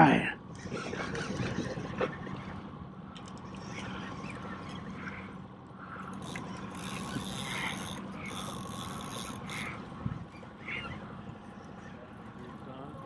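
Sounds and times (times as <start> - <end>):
outboard motor humming: 0.0 - 13.0
fishing reel ratcheting: 6.0 - 9.8.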